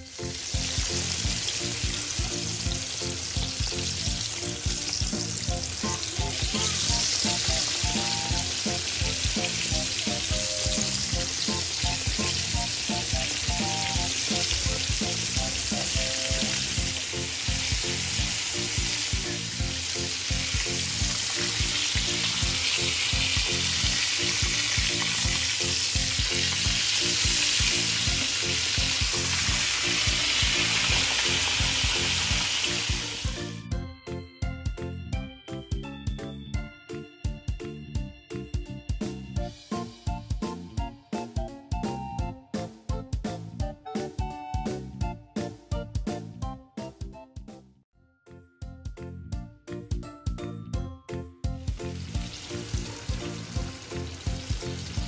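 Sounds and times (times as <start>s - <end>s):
oil sizzling and bubbling: 0.0s - 33.7s, 51.7s - 55.0s.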